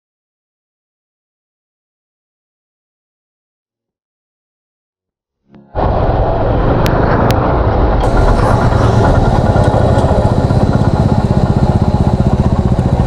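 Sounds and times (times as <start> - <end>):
motorcycle engine running: 8.0 - 13.0.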